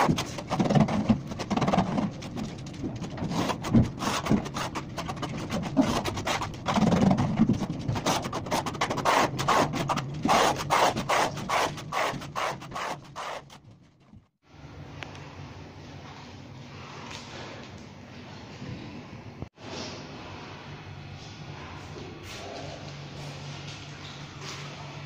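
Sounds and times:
trowel scraping adhesive on wall: 0:00.0 - 0:13.6.

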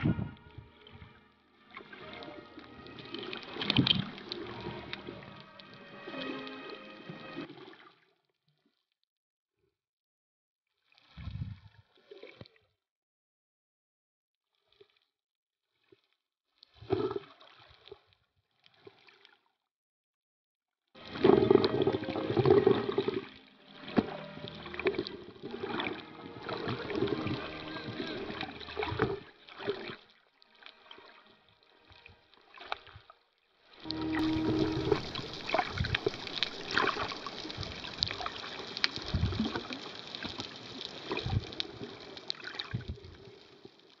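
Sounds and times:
muffled water sloshing underwater: 0:00.0 - 0:08.9, 0:21.0 - 0:44.0
small clicks and crackles: 0:33.8 - 0:44.0.

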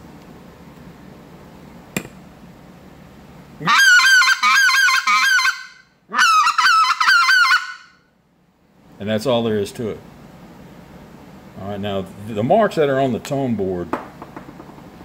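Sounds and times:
goose call honking: 0:03.6 - 0:08.0.

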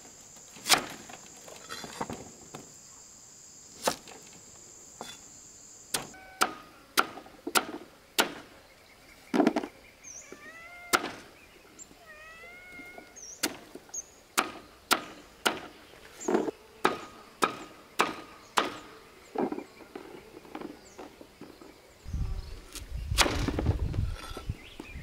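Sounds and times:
cleaver chopping on wooden board: 0:05.9 - 0:08.5, 0:10.9 - 0:11.2, 0:14.4 - 0:15.8, 0:16.8 - 0:18.9
cat meowing: 0:10.2 - 0:11.2, 0:11.9 - 0:13.2.

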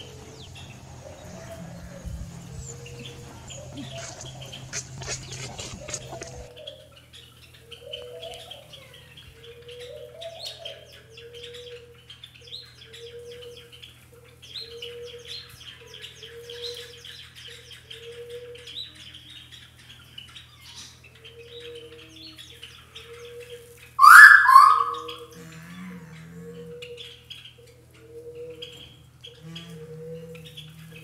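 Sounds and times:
small birds chirping: 0:00.0 - 0:25.4, 0:26.0 - 0:31.0
low hooting note: 0:24.0 - 0:25.2.

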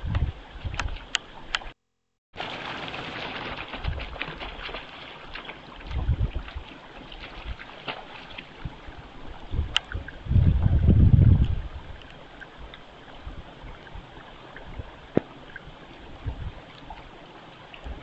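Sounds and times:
wind buffeting microphone: 0:00.0 - 0:01.2, 0:03.5 - 0:16.7.

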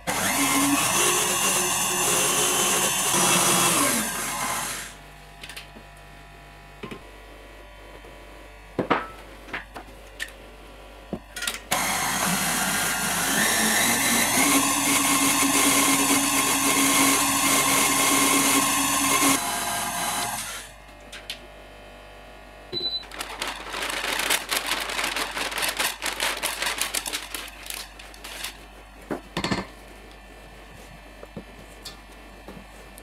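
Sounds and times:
stand mixer whirring: 0:00.0 - 0:04.9, 0:11.8 - 0:20.7.

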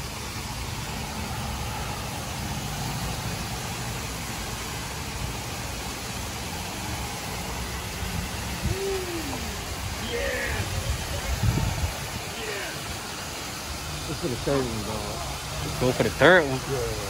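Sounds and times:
even hiss: 0:00.0 - 0:17.0.

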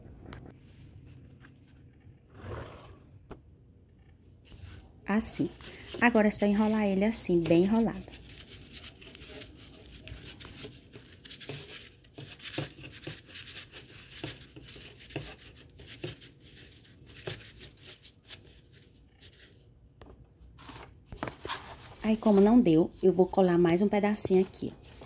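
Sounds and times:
cardboard rubbing and crinkling: 0:05.4 - 0:19.6, 0:20.6 - 0:23.3.

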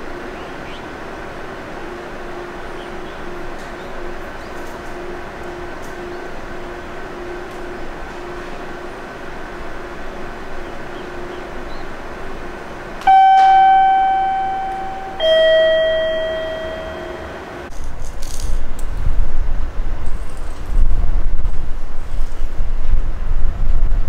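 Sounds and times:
steady background hum: 0:00.0 - 0:24.0
two-note electronic chime: 0:13.1 - 0:17.7
wind buffeting microphone: 0:18.5 - 0:24.0.

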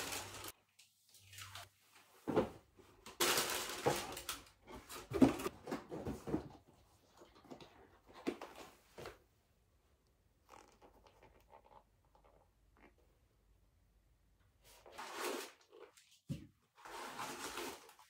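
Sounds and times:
tissue paper rustling: 0:00.0 - 0:00.5.

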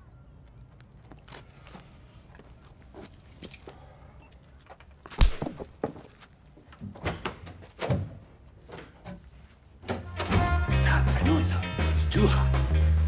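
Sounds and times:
light clinks and rustles: 0:02.9 - 0:03.8.

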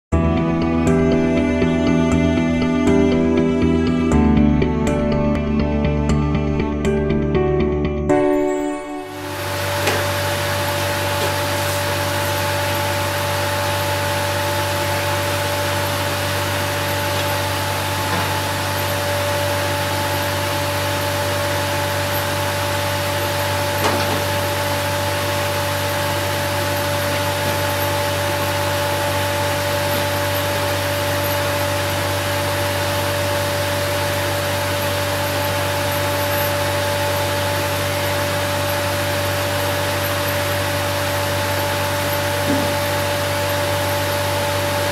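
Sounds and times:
band saw cutting log: 0:09.2 - 0:44.9.

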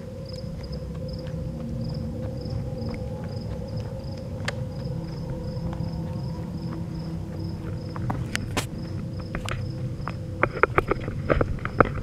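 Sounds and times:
crickets chirping: 0:00.0 - 0:12.0
footsteps on a road: 0:00.0 - 0:12.0.

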